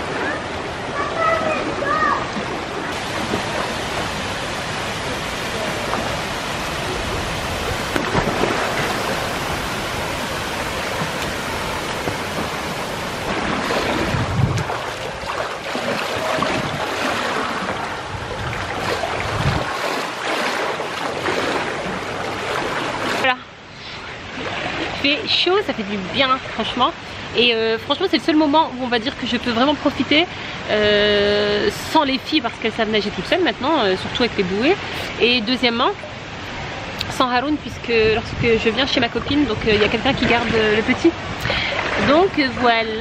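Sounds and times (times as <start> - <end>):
water splashing in pool: 0.0 - 23.3, 24.1 - 26.8, 39.0 - 43.0
swimmer splashing strokes and kicks: 2.4 - 23.3.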